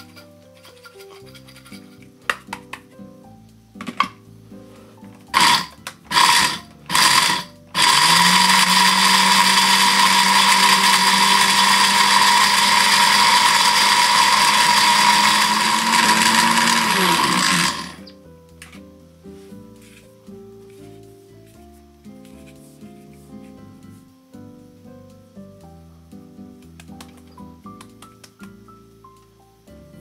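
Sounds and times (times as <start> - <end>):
blender grinding: 5.3 - 18.1.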